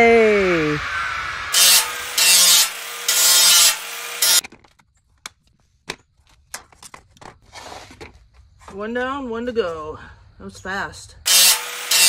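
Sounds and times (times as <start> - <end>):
cutoff wheel grinding steel: 1.0 - 4.4, 11.3 - 12.0.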